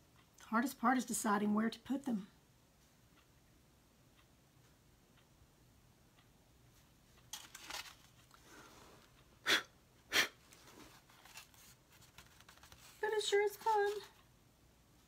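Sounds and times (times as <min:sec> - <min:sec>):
soft breaths: 0:08.2 - 0:13.2
sharp puffs of air: 0:09.4 - 0:10.4.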